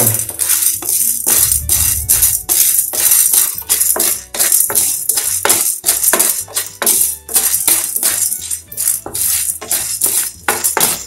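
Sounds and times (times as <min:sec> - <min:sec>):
music with percussion beat: 0:00.0 - 0:11.0
low bass line: 0:01.1 - 0:02.6.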